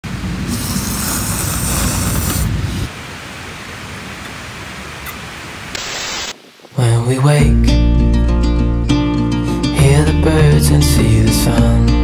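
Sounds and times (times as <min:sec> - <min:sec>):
steady hiss: 0:00.1 - 0:07.4.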